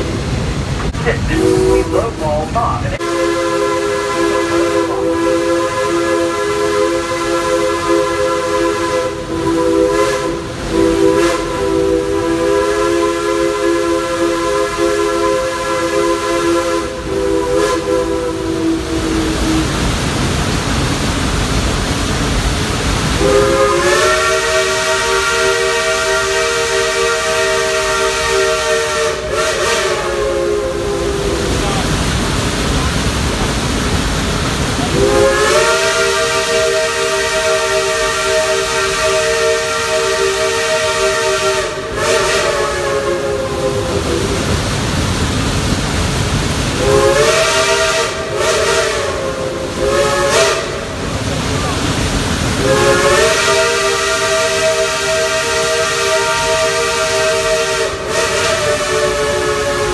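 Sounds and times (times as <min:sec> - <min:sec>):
train running noise: 0:00.0 - 0:59.9
steam locomotive chime whistle: 0:01.0 - 0:19.7, 0:23.2 - 0:31.5, 0:34.9 - 0:44.3, 0:46.8 - 0:50.9, 0:52.6 - 0:59.9.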